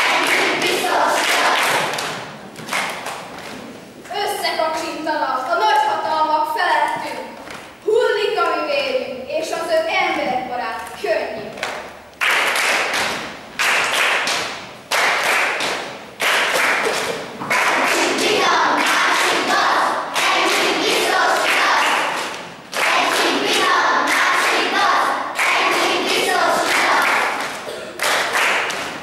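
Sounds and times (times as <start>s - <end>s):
children singing together: 0.0s - 2.2s, 16.9s - 28.2s
children clapping in rhythm: 0.0s - 3.6s, 11.6s - 29.0s.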